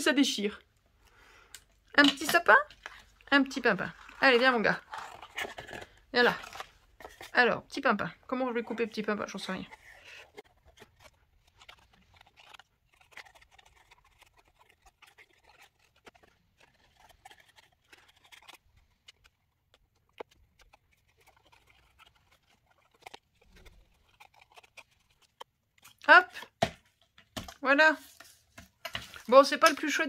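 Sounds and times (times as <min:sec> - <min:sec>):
scissors snipping paper: 0:08.5 - 0:30.0
paper rustling: 0:08.6 - 0:30.0.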